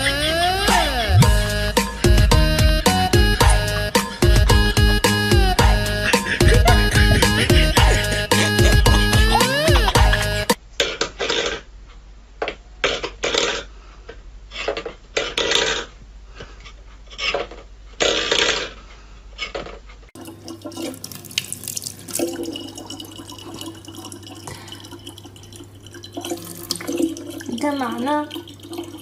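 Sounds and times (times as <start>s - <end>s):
tap running water: 20.2s - 29.0s.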